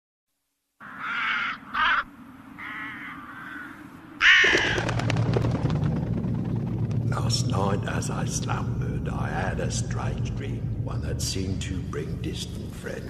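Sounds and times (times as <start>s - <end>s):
crows cawing: 0.8s - 5.0s
low rumble with crackles: 4.5s - 13.0s.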